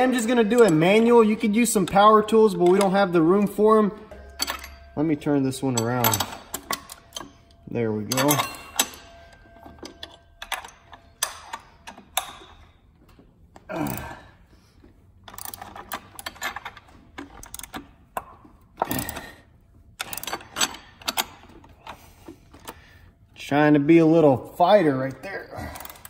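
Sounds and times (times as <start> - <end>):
wrench metal clicks: 0.0 - 12.7, 15.2 - 19.4, 20.0 - 22.8.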